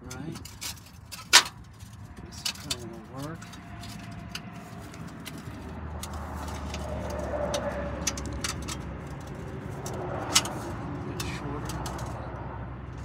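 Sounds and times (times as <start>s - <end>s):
hands clicking and scraping metal: 0.0s - 13.0s
low rumble: 3.0s - 13.0s.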